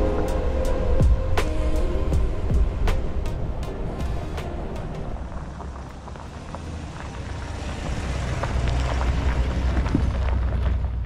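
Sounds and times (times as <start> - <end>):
truck engine rumble: 0.0 - 11.0
tyres crackling over stones: 5.0 - 11.0.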